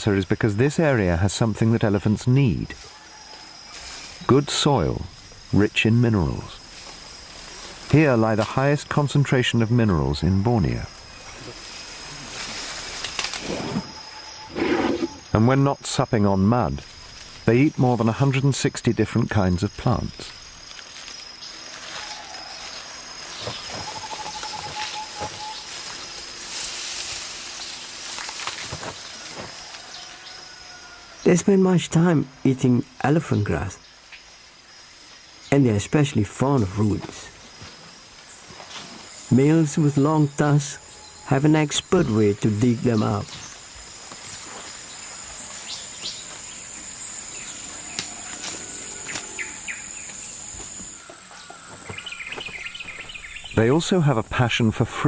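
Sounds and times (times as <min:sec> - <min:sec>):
insect drone: 0:00.0 - 0:55.0
foliage rustling: 0:02.0 - 0:15.4, 0:16.7 - 0:18.2, 0:19.8 - 0:31.2, 0:36.2 - 0:54.4
stems snapping: 0:12.4 - 0:13.5, 0:28.0 - 0:29.8, 0:47.9 - 0:49.3
bird chirps: 0:21.3 - 0:26.1, 0:44.3 - 0:53.9.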